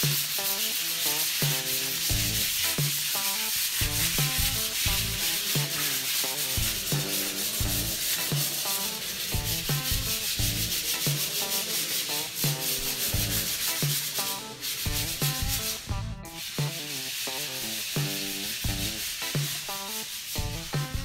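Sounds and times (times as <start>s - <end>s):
background music with steady beat: 0.0s - 21.0s
hand sanding a wall: 0.0s - 21.0s.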